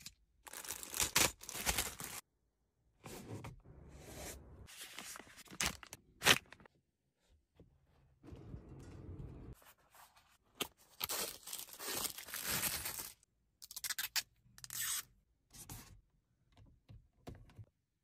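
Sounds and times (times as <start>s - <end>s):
plastic wrapping crinkling and tearing: 0.4s - 2.2s, 10.9s - 13.2s.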